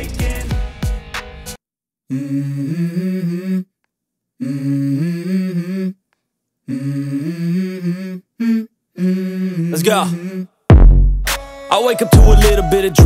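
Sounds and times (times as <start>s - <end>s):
hummed melody: 11.3s - 13.0s.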